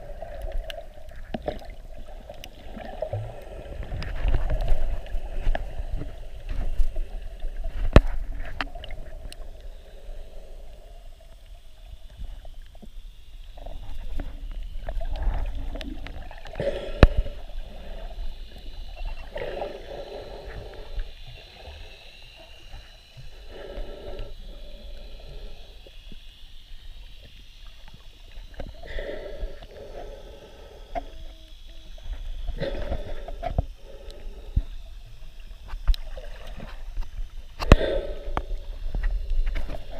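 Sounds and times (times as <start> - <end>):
low underwater rumble: 0.0 - 39.9.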